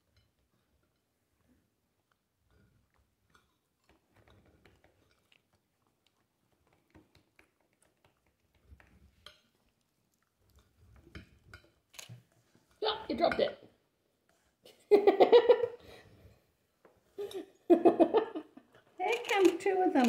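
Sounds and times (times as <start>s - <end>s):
dog chewing food: 2.8s - 12.4s.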